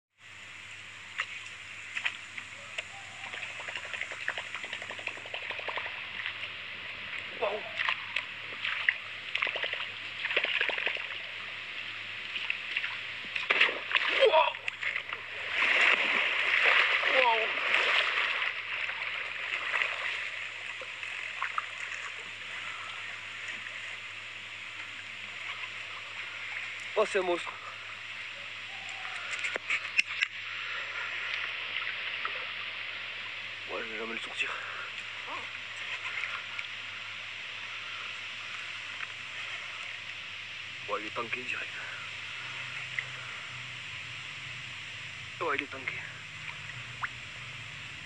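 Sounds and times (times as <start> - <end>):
steady hiss: 0.2 - 48.0
faint ticks: 1.1 - 6.4, 28.8 - 30.4, 37.9 - 40.2, 42.4 - 43.8
water splashing and dripping: 1.1 - 11.6, 12.2 - 23.9, 45.4 - 48.0
fast light ticks: 1.2 - 5.9
sharp water plips: 1.2 - 6.3, 7.7 - 11.2, 12.4 - 22.1, 46.4 - 47.5.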